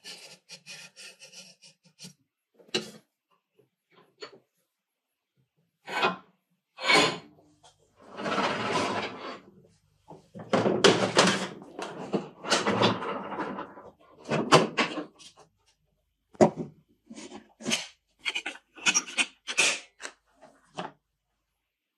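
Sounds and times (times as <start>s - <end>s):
drawer sliding open and shut: 8.0s - 9.5s.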